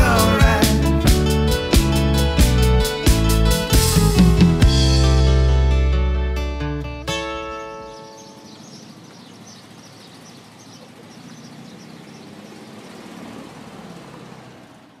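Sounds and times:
guitar chord: 0.0 - 8.4
vehicle engine running: 0.0 - 15.0
birds chirping: 6.3 - 15.0.

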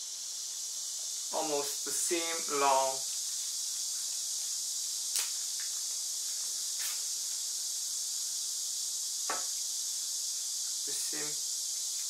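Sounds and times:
steady high-pitched hiss: 0.0 - 12.0.

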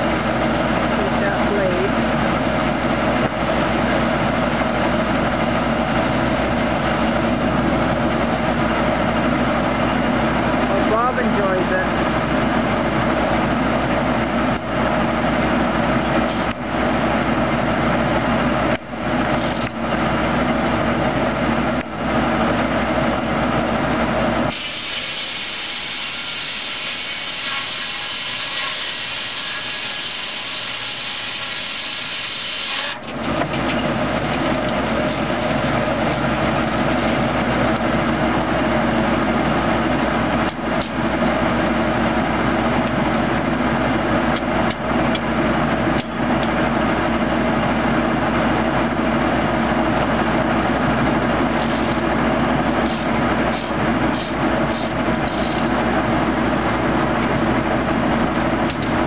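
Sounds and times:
circular sawmill running: 0.0 - 59.0
saw blade cutting log: 24.5 - 33.0, 51.6 - 52.0, 52.8 - 55.7.

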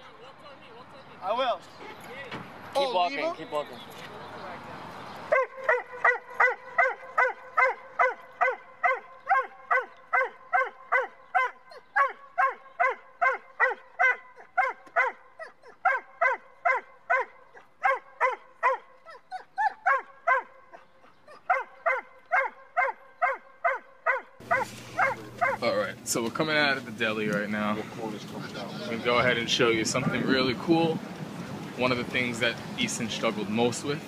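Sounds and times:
dog yelping: 5.3 - 25.8.

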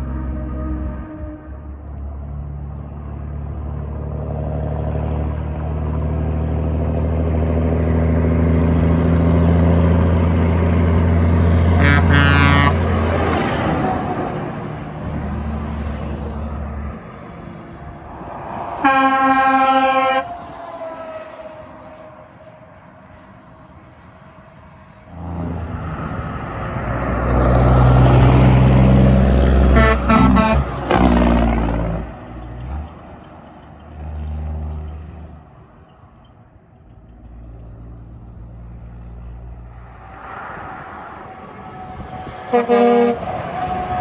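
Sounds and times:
truck air horns blasting: 0.0 - 1.8, 11.6 - 13.2, 18.8 - 20.7, 29.6 - 31.4, 41.4 - 44.0
diesel truck engine passing: 0.0 - 44.0.

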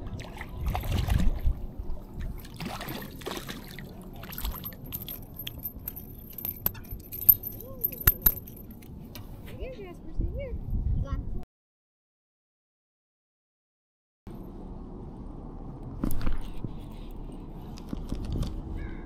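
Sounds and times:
fish splashing at surface: 2.3 - 5.0.

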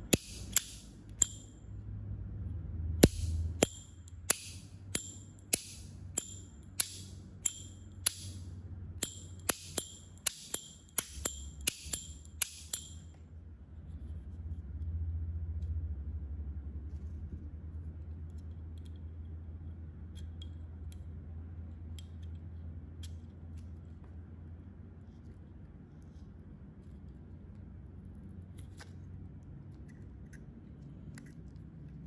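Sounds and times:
lighter lid clicking open and shut: 0.1 - 1.4, 3.0 - 8.4, 9.0 - 13.0.

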